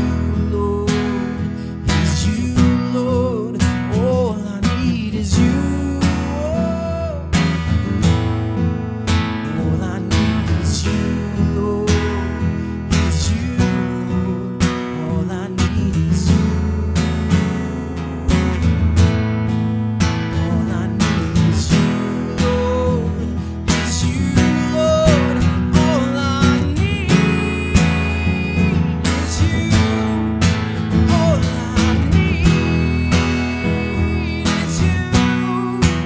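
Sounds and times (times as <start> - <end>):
strummed acoustic guitar: 0.0 - 36.0.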